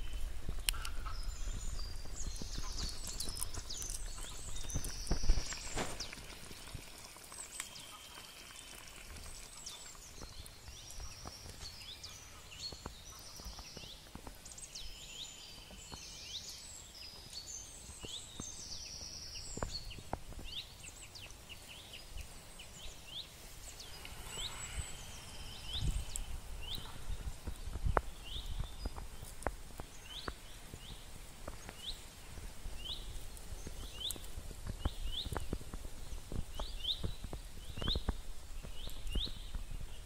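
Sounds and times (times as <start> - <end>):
songbirds chirping and singing: 0.0 - 40.0.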